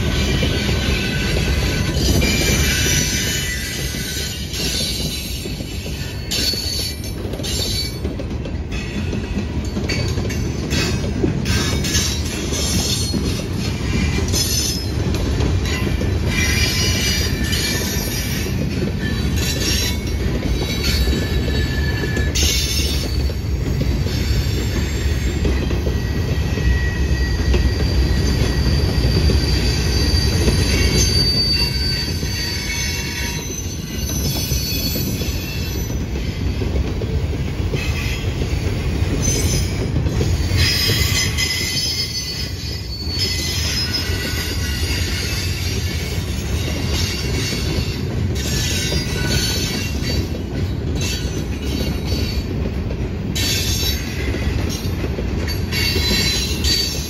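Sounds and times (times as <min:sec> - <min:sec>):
train wheels rumbling on rails: 0:00.0 - 0:57.0
wheel squeals: 0:15.7 - 0:36.6, 0:39.2 - 0:50.4.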